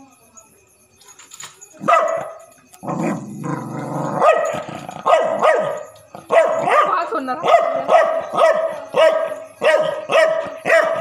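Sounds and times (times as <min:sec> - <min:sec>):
dog barking: 0:01.8 - 0:02.4, 0:04.1 - 0:11.0
dog growling: 0:02.8 - 0:05.4.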